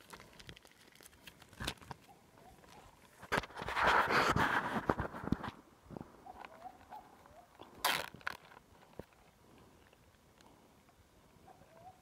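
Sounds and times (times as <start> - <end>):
plastic bag crinkling: 0.0 - 4.0, 6.8 - 9.3.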